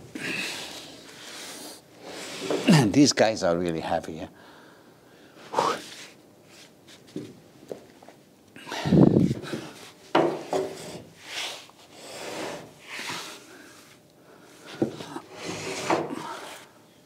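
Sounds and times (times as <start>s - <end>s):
timber beam scraping on wood: 10.2s - 13.9s, 14.8s - 16.7s.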